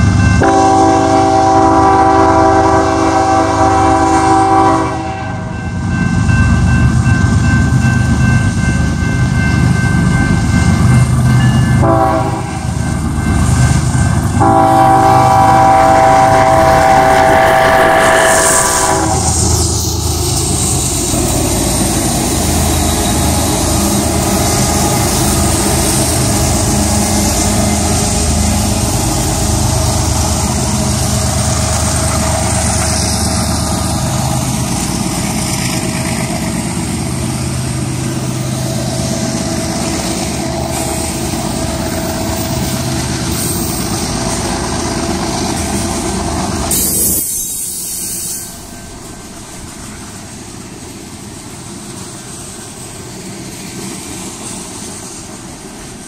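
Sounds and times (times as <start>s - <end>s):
diesel locomotive engines rumbling: 0.0s - 56.0s
train wheels rumbling: 0.0s - 56.0s
train air horn blasts: 0.4s - 5.6s, 11.8s - 12.8s, 14.4s - 19.6s.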